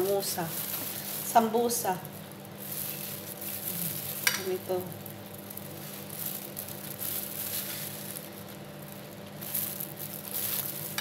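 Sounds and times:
plastic gloves rustling: 0.0s - 11.0s
steady low hum: 0.0s - 11.0s.

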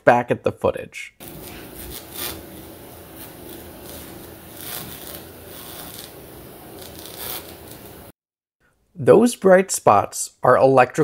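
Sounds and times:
electrical arcing crackling hiss: 1.2s - 8.1s.

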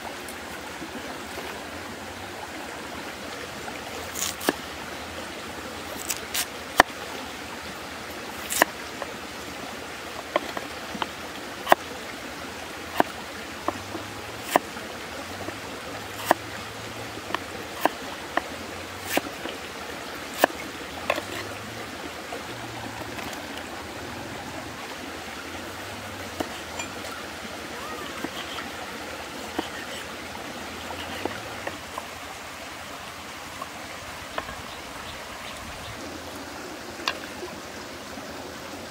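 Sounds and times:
rushing stream: 0.0s - 38.9s
cleaver chopping on wooden block: 16.2s - 16.4s, 29.5s - 30.0s.

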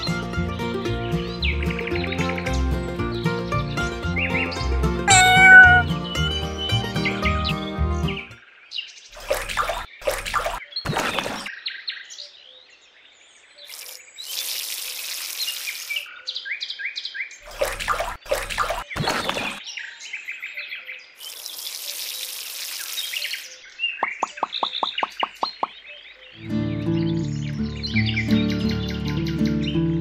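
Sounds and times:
small birds chirping: 1.1s - 14.6s, 15.3s - 30.0s
water poured from a cup: 9.2s - 11.5s, 13.7s - 16.1s, 17.5s - 19.6s, 21.2s - 23.5s.

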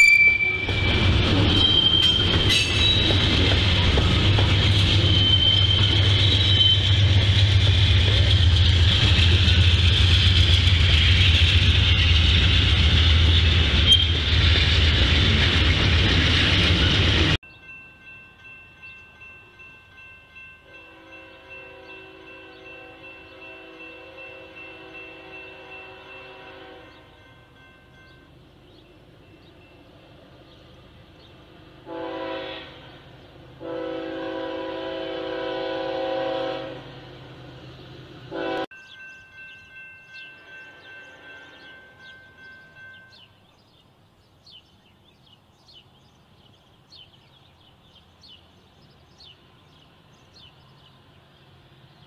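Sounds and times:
crossing bell ringing: 0.0s - 9.9s, 16.2s - 30.6s, 38.3s - 43.5s
high wheel squeal: 0.0s - 17.1s
diesel train passing: 0.0s - 43.8s, 44.8s - 52.0s.

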